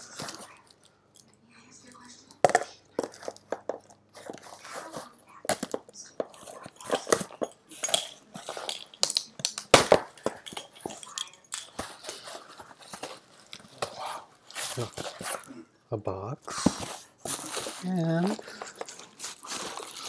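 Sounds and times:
cardboard rustling and scraping: 11.8s - 15.5s, 16.5s - 20.0s.

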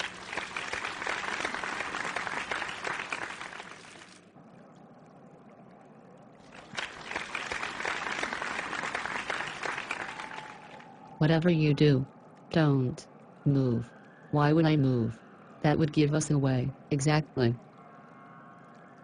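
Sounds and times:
audience applause: 0.0s - 4.3s, 6.5s - 11.1s.

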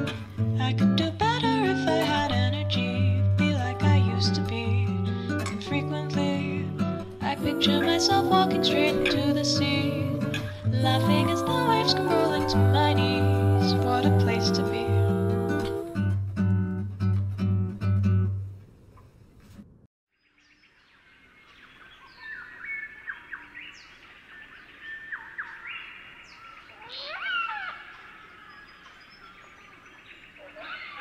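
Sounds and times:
acoustic guitar music: 0.0s - 18.6s
birds calling and chirping: 21.4s - 31.0s.

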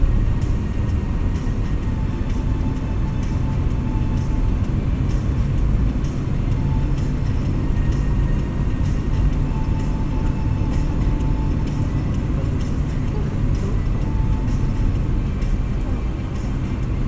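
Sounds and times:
car interior road rumble: 0.0s - 17.0s.

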